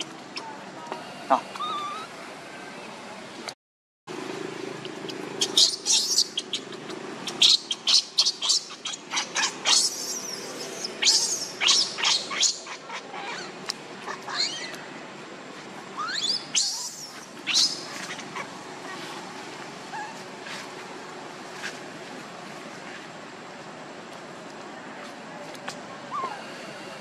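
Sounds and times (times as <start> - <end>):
infant monkey crying: 1.3 - 2.2, 5.4 - 14.8, 16.0 - 18.5.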